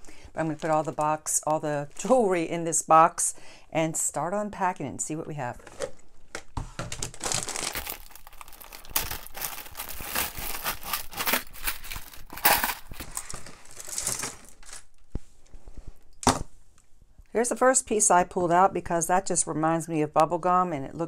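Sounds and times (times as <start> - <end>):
plastic bag crinkling: 6.8 - 15.1
beads and metal pieces clattering: 7.2 - 14.3.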